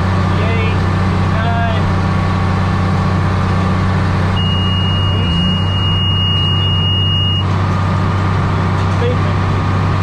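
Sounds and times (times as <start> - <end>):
tractor diesel engine running: 0.0 - 10.0
high-pitched electronic beep: 4.4 - 7.5.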